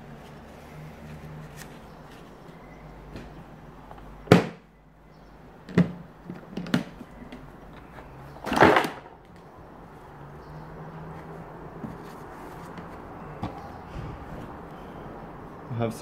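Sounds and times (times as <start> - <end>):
hard plastic knocks and clatter: 5.7 - 9.2.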